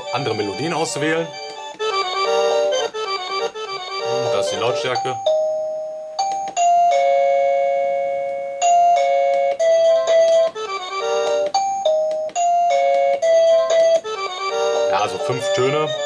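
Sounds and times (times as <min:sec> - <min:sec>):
electronic doorbell chime: 0:04.8 - 0:10.2, 0:11.1 - 0:13.7.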